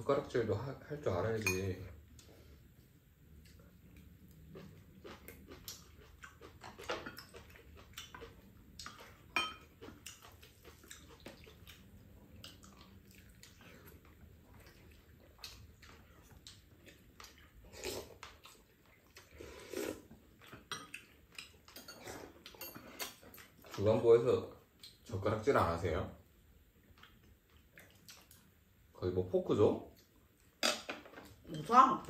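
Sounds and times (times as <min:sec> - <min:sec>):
spoons and chopsticks on bowls: 0:01.3 - 0:01.9, 0:09.0 - 0:09.9, 0:20.6 - 0:23.8.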